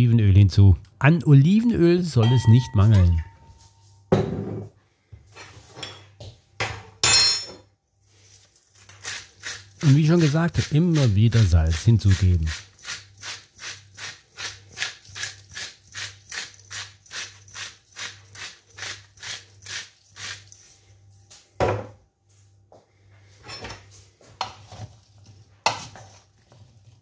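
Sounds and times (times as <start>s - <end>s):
hands tossing vegetables in bowl: 8.1s - 15.3s.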